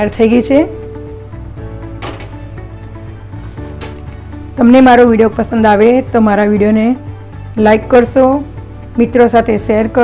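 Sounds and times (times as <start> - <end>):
instrumental music: 0.0 - 10.0.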